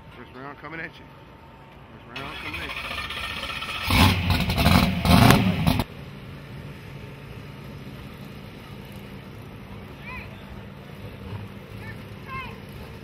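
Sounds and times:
car engine revving loudly: 2.3 - 5.9.

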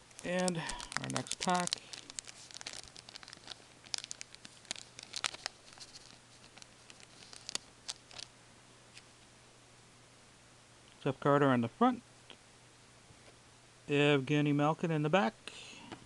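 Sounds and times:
wrapper crinkling and tearing: 0.0 - 8.3.

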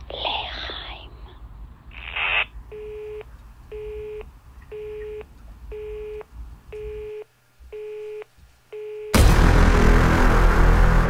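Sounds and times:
low background rumble: 0.0 - 7.6
telephone busy tone beeps: 2.7 - 6.2, 6.8 - 7.2, 7.8 - 9.2.

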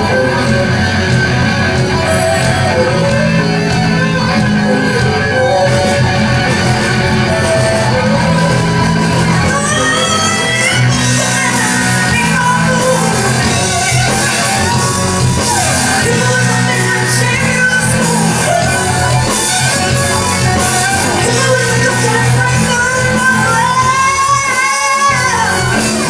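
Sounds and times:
drums: 0.0 - 26.0
electric bass: 0.0 - 26.0
electric guitar: 0.0 - 26.0
woman singing: 9.4 - 14.9, 15.5 - 26.0.

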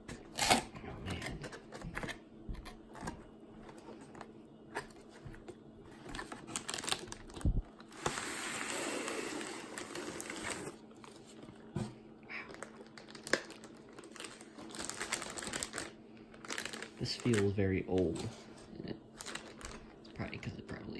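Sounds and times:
packaging rustling and tapping: 3.0 - 8.2.

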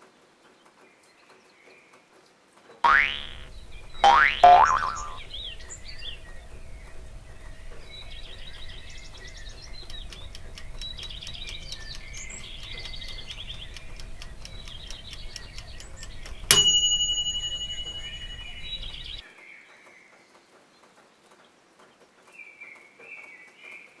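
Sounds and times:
faint ticking: 2.9 - 19.2
low steady hum: 2.9 - 19.2
birdsong chirping: 2.9 - 20.4
bright ding ringing: 16.5 - 19.2.

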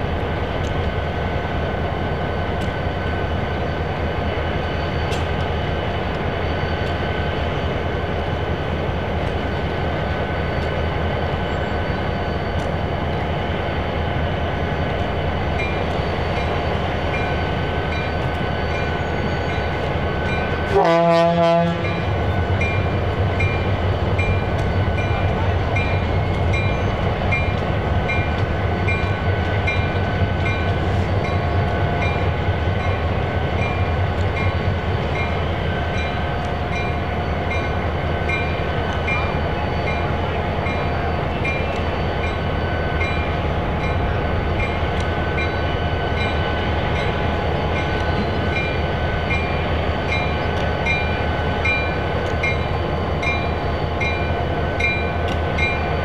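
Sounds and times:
diesel locomotives rumbling: 0.0 - 56.0
air horn blast: 20.7 - 21.9.

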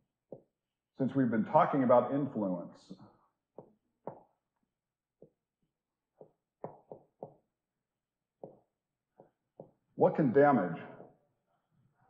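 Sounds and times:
marker tapping on whiteboard: 0.3 - 0.6, 3.5 - 4.5, 5.2 - 5.5, 6.1 - 7.6, 8.4 - 9.9.

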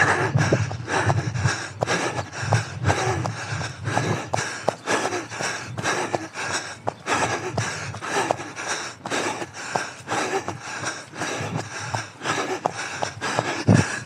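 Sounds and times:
runner breathing hard: 0.0 - 14.0.

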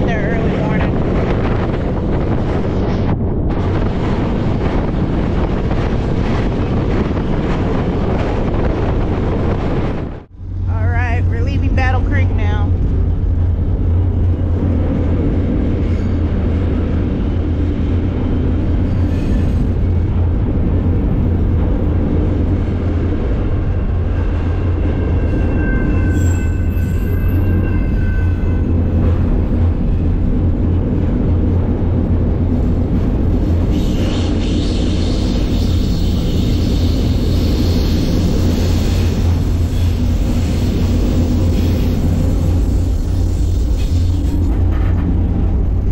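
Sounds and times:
freight train rumbling on rails: 0.0 - 45.9
faint high squeal: 25.3 - 28.6.

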